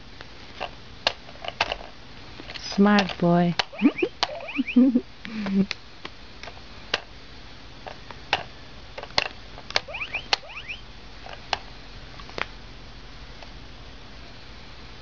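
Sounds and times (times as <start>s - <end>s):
faint high chirps: 3.7s - 5.0s, 9.9s - 10.8s.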